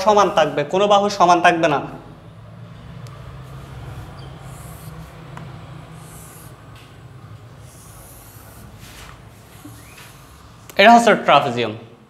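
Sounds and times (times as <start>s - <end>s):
steady low hum: 1.8s - 10.8s
marker scratching on whiteboard: 3.4s - 10.8s.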